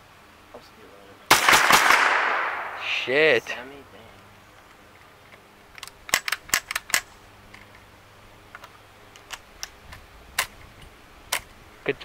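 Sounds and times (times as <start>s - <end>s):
pellet gun clicks and cracks: 5.7s - 7.7s, 8.6s - 10.7s.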